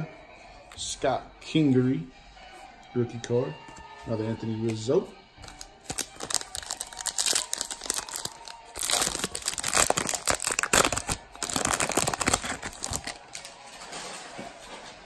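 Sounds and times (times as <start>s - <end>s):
wrapper crinkling: 5.4s - 14.1s
card pack wrapper tearing: 5.5s - 13.5s.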